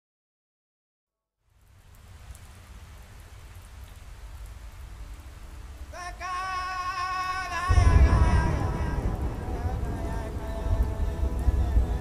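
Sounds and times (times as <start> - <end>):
rain falling: 1.4 - 12.0
low rumble: 7.7 - 12.0.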